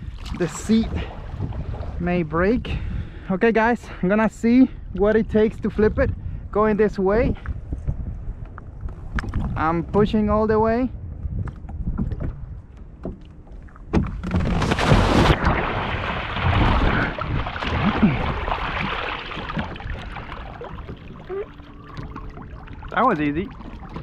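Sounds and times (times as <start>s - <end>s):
water churning and sloshing: 0.0s - 6.6s, 7.3s - 10.3s, 11.0s - 24.0s
loud splash: 14.2s - 24.0s.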